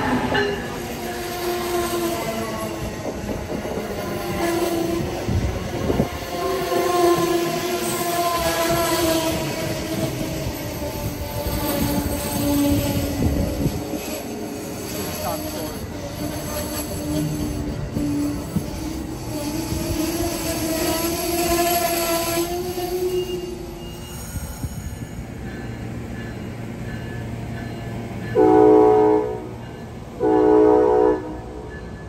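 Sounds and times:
train coaches rolling on rails: 0:00.0 - 0:32.0
train horn blasts: 0:06.4 - 0:09.8, 0:15.0 - 0:23.8, 0:28.4 - 0:29.6, 0:30.2 - 0:31.7.

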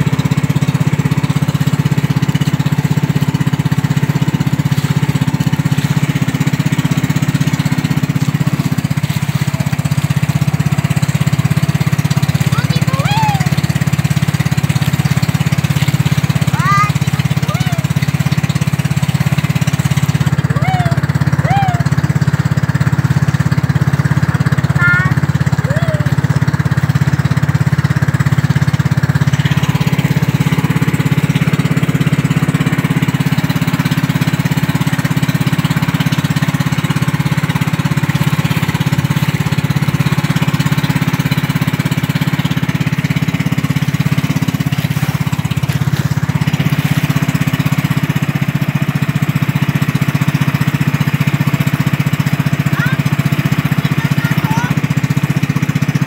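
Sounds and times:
wind and water rushing: 0:00.0 - 0:55.1
boat engine running: 0:00.0 - 0:56.0.

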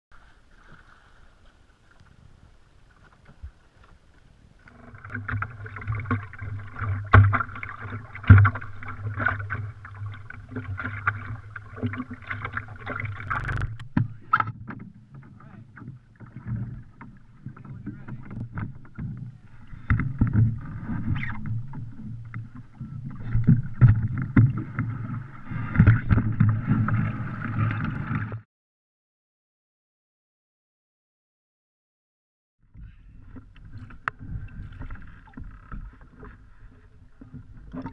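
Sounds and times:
water slapping against hull: 0:02.9 - 0:28.4, 0:33.1 - 0:37.9.

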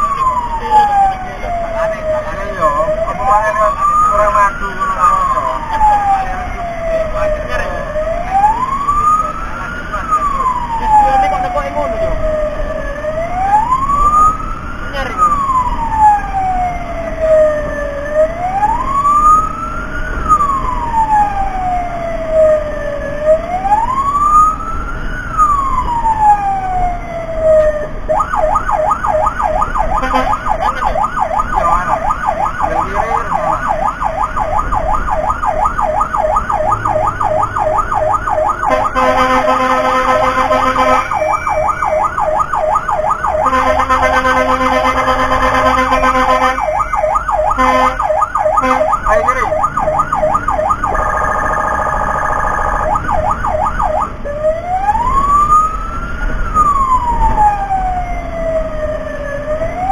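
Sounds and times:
electronic siren wailing and yelping: 0:00.0 - 0:59.9
steady siren tone: 0:00.0 - 0:59.9.

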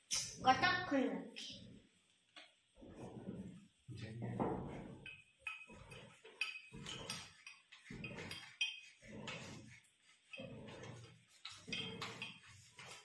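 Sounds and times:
metal tubes clinking and knocking: 0:02.4 - 0:13.0.

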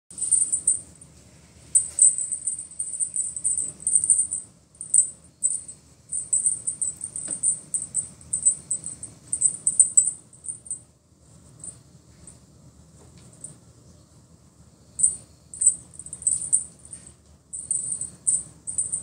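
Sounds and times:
small jingle bell jingling: 0:00.1 - 0:01.1, 0:01.7 - 0:10.8, 0:15.0 - 0:19.0.

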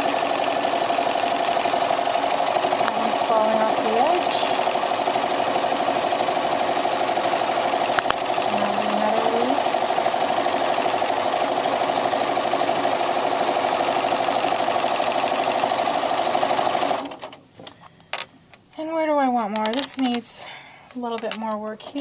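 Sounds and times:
sewing machine stitching fast: 0:00.0 - 0:17.4
sharp click: 0:07.9 - 0:08.2.

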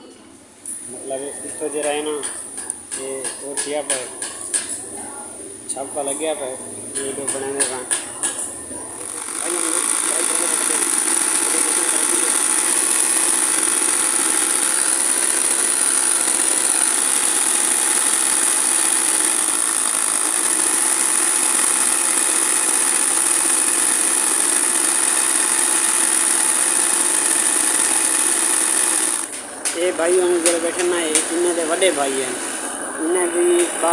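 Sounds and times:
sewing machine whining: 0:08.9 - 0:33.9.

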